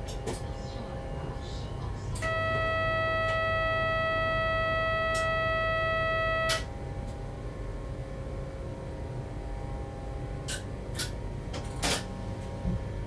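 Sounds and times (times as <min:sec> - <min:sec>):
electronic warning tone: 0:02.2 - 0:06.7.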